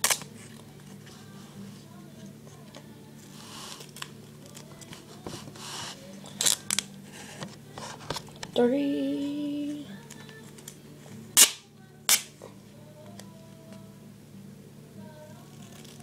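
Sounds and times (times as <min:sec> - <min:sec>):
duct tape ripping off roll: 0:00.0 - 0:00.6, 0:03.4 - 0:08.2, 0:11.3 - 0:12.4.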